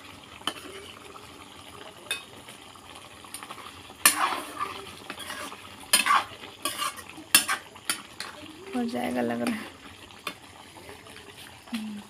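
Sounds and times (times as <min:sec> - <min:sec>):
spoon scraping and clinking on pot: 0:04.0 - 0:08.4.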